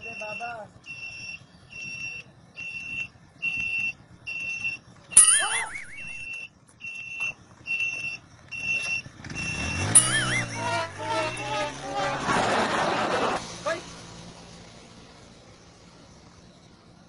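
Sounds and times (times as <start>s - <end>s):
high-pitched electronic beeps: 0.1s - 11.8s
wavering pitch burst: 9.6s - 12.2s.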